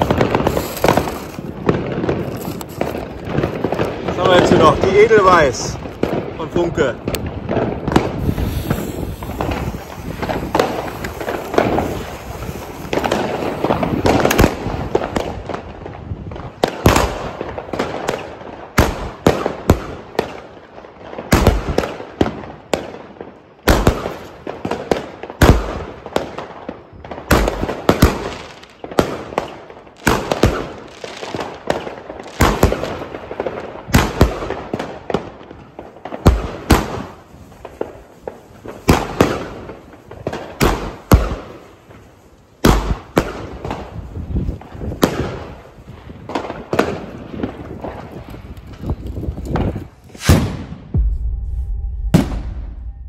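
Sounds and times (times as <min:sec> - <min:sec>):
firework bangs: 0:00.0 - 0:53.0
fuse hissing: 0:08.2 - 0:13.6.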